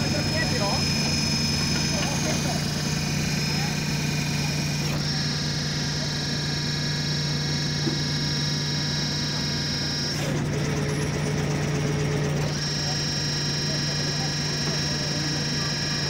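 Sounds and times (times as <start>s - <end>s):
high whine: 0.0s - 10.2s
tractor engine droning: 0.0s - 16.0s.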